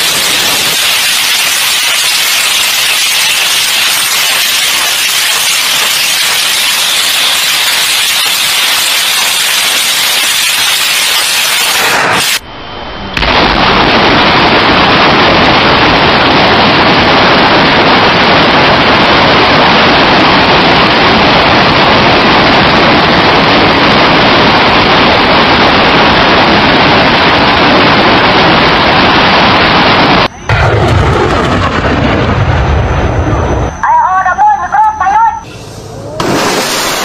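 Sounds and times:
rocket launcher firing roar: 0.0s - 33.8s, 35.9s - 37.0s.

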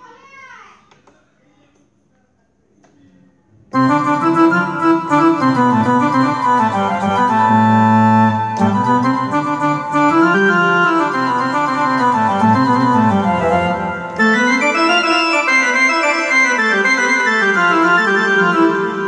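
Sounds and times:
keytar synth melody: 3.8s - 19.0s.

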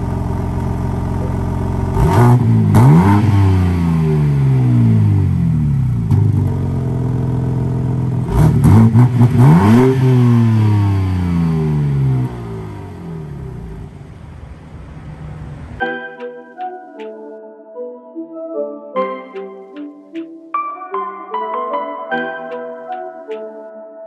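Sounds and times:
car engine idling: 0.0s - 2.7s, 5.4s - 8.4s
car engine revving: 0.1s - 15.8s.

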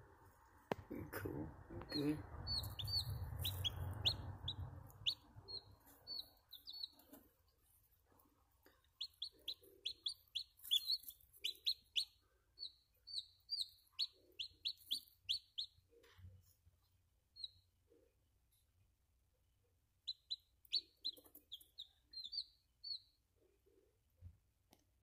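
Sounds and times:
chick peeping: 1.8s - 7.8s, 8.6s - 16.1s, 20.0s - 23.2s.

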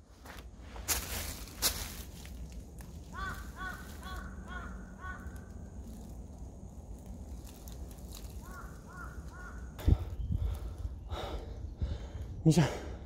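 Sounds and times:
crow cawing: 3.0s - 6.1s, 8.2s - 10.0s.

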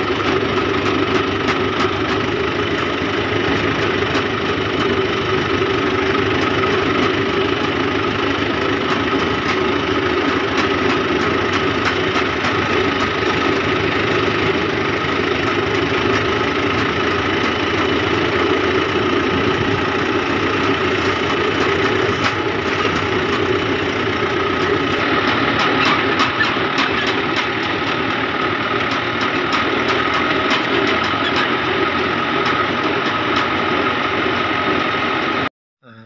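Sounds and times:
tractor diesel engine running: 0.0s - 36.0s
clicks and rattles: 28.8s - 31.6s.

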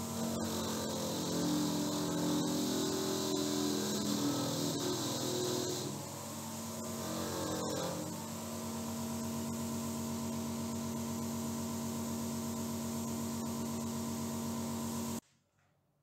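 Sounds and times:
bench grinder running: 0.0s - 15.2s
wire wheel cleaning metal: 0.2s - 6.0s.

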